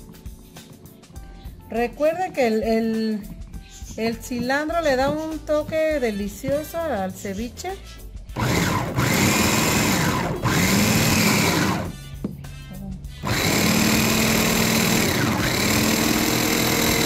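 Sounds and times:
food chopper motor whirring: 8.4s - 12.0s, 13.2s - 17.0s.

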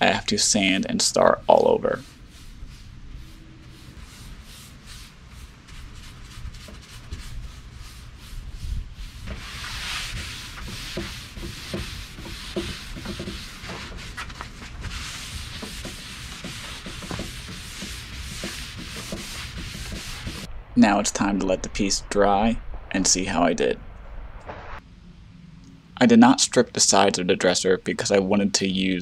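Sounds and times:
brush strokes on wood: 0.6s - 20.5s
cloth rubbing on wood: 1.5s - 20.5s.

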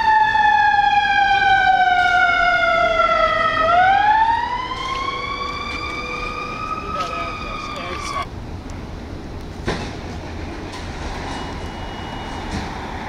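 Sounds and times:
emergency siren wailing: 0.0s - 8.3s.

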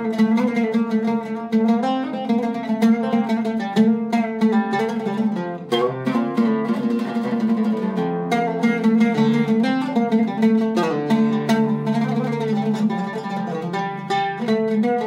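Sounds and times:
oud played with plectrum: 0.0s - 15.0s.

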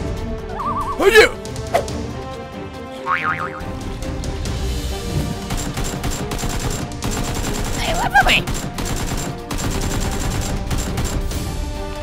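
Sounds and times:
background music: 0.0s - 12.0s
rapid burst-fire gunshots: 5.4s - 11.5s.

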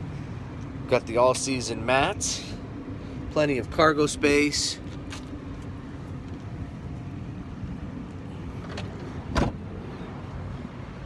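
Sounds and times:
low outdoor rumble: 0.0s - 11.0s
car liftgate shutting: 8.6s - 9.6s.

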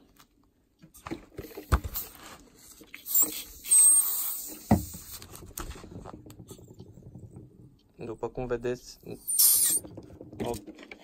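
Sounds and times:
compressed air hiss: 9.3s - 9.8s.

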